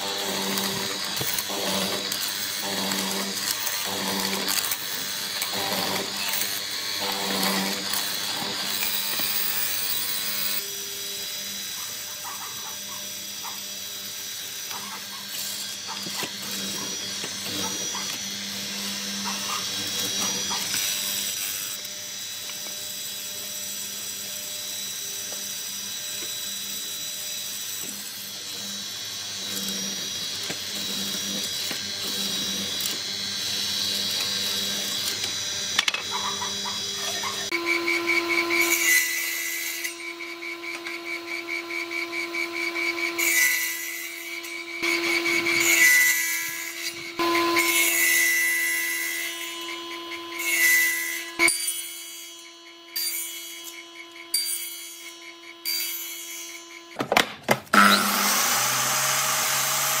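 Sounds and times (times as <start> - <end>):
circular saw cutting wood: 0.0 - 60.0
mortising machine boring into wood: 0.0 - 60.0
miter saw starting with whine: 28.6 - 51.5, 57.7 - 60.0.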